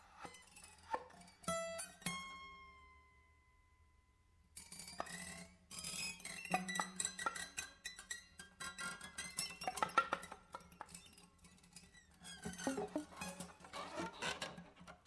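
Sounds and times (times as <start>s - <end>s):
metallic guitar plucks and scrapes: 4.6s - 15.0s.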